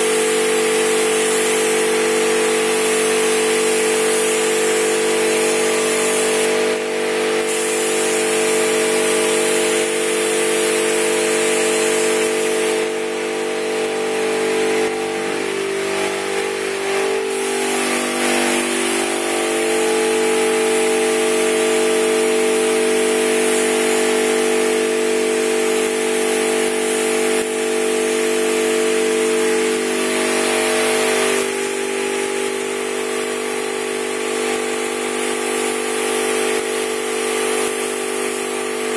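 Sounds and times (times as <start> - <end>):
paint spray gun hissing: 0.0 - 13.2, 15.1 - 24.8, 34.6 - 38.9.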